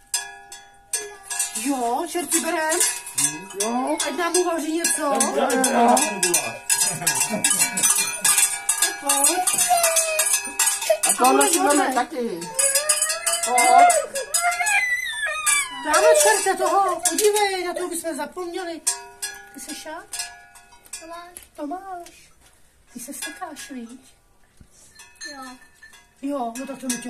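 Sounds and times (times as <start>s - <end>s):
bells clanking and jingling: 0.0s - 21.3s, 24.8s - 27.0s
person crying out: 12.5s - 16.4s.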